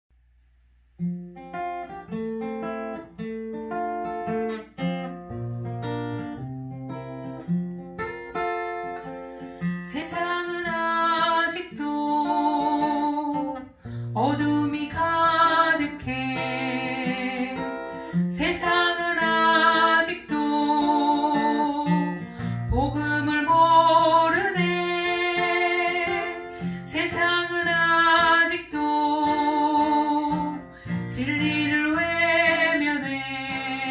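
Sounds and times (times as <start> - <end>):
acoustic guitar plucked: 0.9 - 33.9
woman singing worship song: 9.9 - 33.9.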